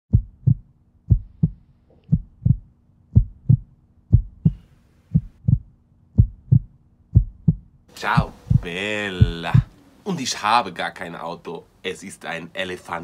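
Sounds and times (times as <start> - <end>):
heartbeat thumps: 0.1 - 9.7.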